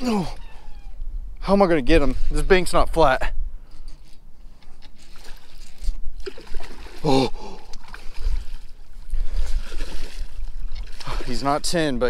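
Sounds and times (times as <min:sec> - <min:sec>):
fish splashing at the surface: 0:05.1 - 0:11.4.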